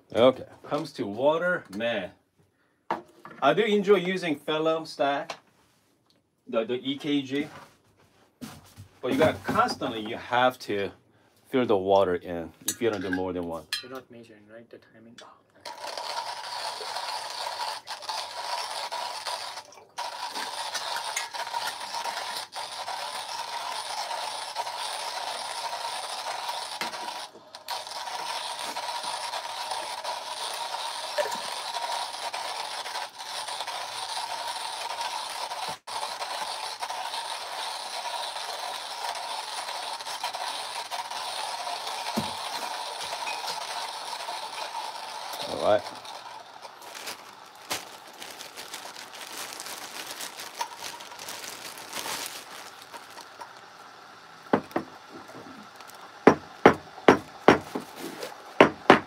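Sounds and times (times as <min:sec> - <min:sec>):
hand coffee grinder grinding: 0:08.4 - 0:10.5, 0:15.6 - 0:59.0.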